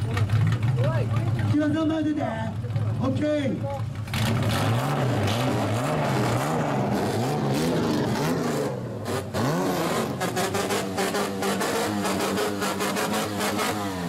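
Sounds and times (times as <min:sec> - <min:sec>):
car engine revving: 0:03.9 - 0:14.0.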